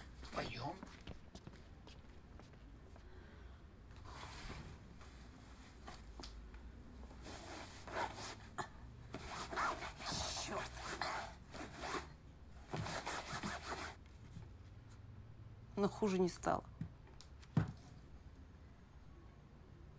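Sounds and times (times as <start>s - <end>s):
canvas rubbing and scraping: 7.2s - 8.5s, 9.1s - 12.1s, 12.7s - 14.0s.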